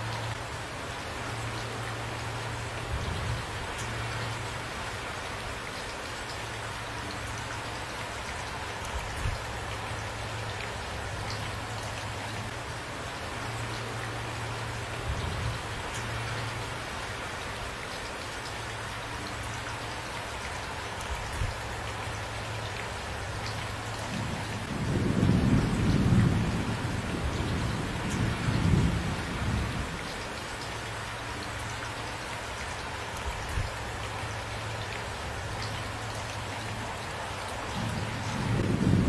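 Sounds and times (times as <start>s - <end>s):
steady rain falling: 0.0s - 39.0s
rolling thunder rumble: 24.1s - 30.1s, 37.7s - 39.0s.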